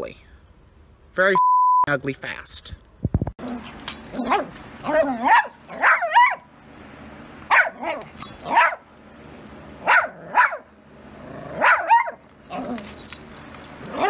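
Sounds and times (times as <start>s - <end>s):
dogs yapping barks: 3.4s - 6.6s, 7.4s - 9.0s, 9.8s - 10.8s, 11.4s - 14.0s.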